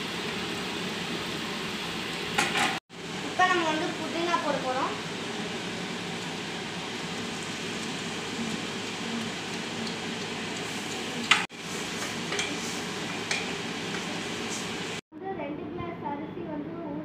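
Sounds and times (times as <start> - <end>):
food sizzling in pan: 0.0 - 15.0
spatula clacking against pan: 12.3 - 14.1.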